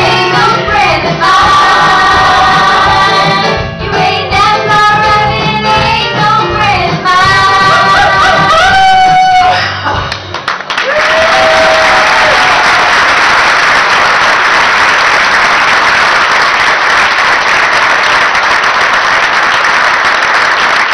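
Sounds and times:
audience applauding: 10.1 - 20.9.

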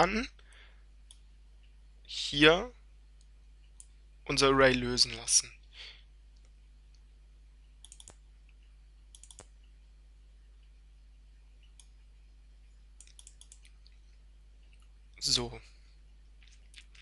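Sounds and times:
low electrical hum: 0.0 - 17.0
computer clicks: 3.2 - 4.0, 7.8 - 9.7, 11.6 - 12.0, 13.0 - 14.0.

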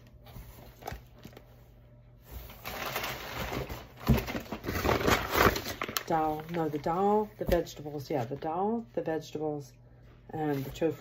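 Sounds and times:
packaging rustling and crinkling: 0.0 - 7.7.

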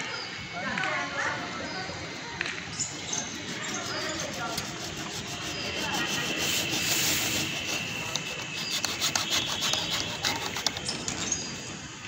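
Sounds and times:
plastic pipe scraping on metal mesh: 3.0 - 11.3.

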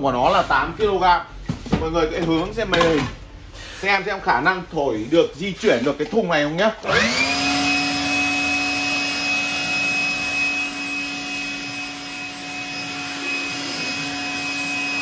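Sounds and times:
leaf blower motor whine: 6.8 - 15.0.

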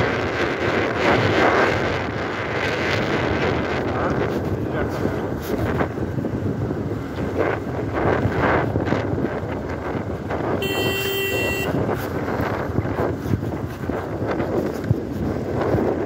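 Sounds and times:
wind buffeting microphone: 0.0 - 16.0
motorcycle engine running: 9.6 - 15.8
steady tone: 10.6 - 11.8.

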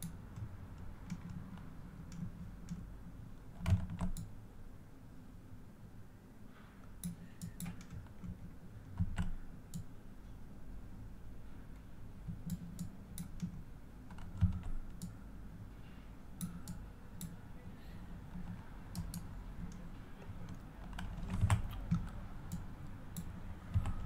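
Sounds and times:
computer mouse and keyboard clicks: 0.0 - 2.9, 3.5 - 4.3, 7.0 - 9.9, 12.3 - 15.2, 18.3 - 24.0.

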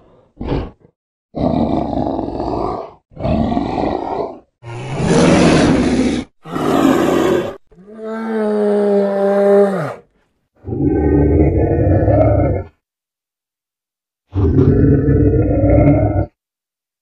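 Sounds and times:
creature grunt: 0.4 - 10.0
long growling roars: 0.4 - 12.8, 14.3 - 16.4.

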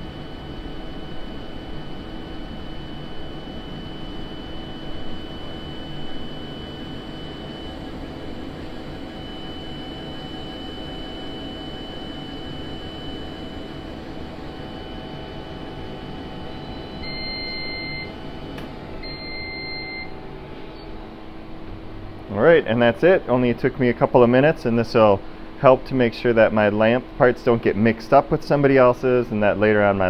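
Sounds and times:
laser engraver whirring: 0.0 - 22.9
thin high whine: 0.0 - 30.0
electronic beep: 16.4 - 18.2, 19.0 - 20.9.

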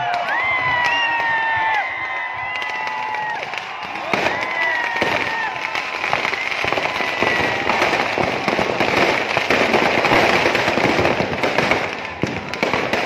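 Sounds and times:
firecrackers crackling: 0.0 - 13.0
sharp firecracker bangs: 2.6 - 13.0.

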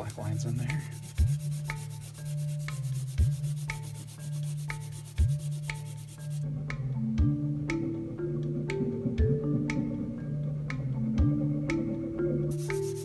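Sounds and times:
eraser scrubbing paper: 0.0 - 6.4, 12.6 - 13.0
background music with beat: 0.0 - 13.0.

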